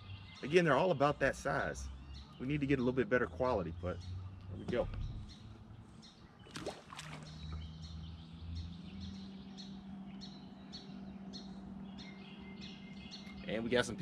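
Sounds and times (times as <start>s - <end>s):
small birds chirping: 0.0s - 14.0s
jet ski engine drone: 7.3s - 14.0s.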